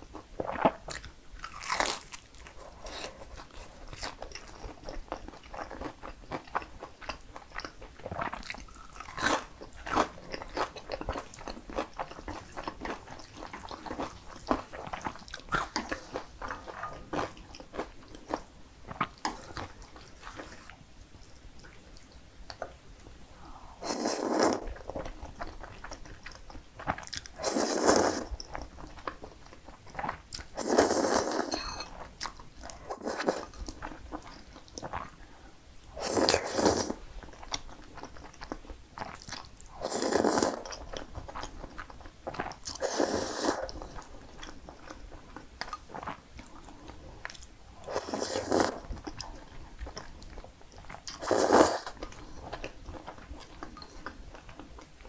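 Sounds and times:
soft chewing: 0.0 - 55.0
loud noodle slurps: 23.8 - 24.7, 27.4 - 28.3, 30.6 - 31.6, 36.0 - 37.0, 39.8 - 40.7, 42.8 - 43.7, 47.9 - 48.8, 51.2 - 52.0.

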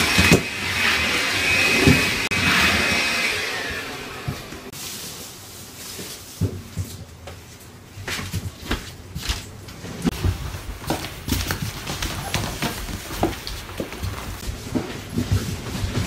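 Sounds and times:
footsteps on wooden floor: 8.0 - 16.0.

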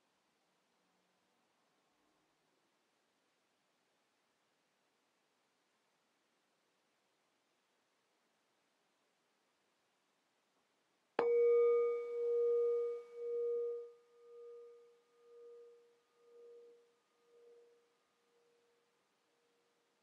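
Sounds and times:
singing bowl ringing: 11.2 - 19.6.

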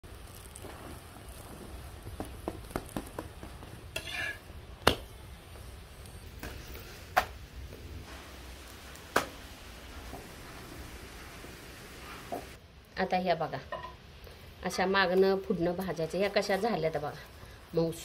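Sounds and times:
flatbread sizzling on griddle: 0.0 - 12.6.

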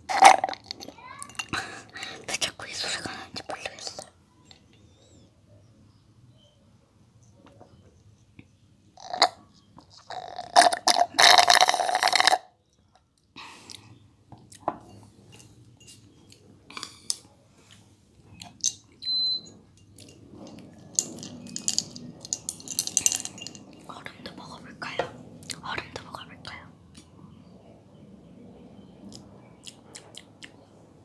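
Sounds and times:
person gulping juice: 0.0 - 0.8, 9.0 - 12.5
glass and straw clicks: 18.4 - 25.1.

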